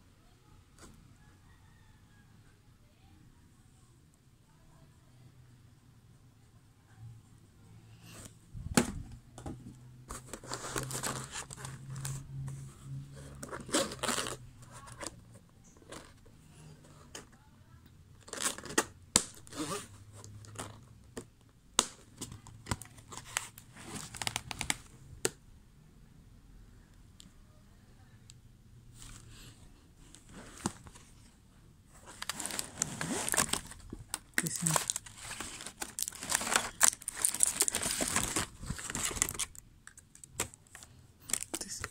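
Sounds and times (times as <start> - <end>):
rustling and scraping: 8.0 - 17.3, 22.2 - 24.8, 28.9 - 39.6.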